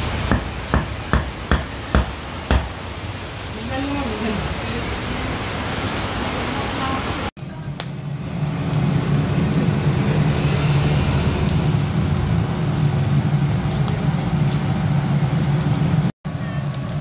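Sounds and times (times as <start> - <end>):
meat sizzling on grill: 7.7 - 17.0.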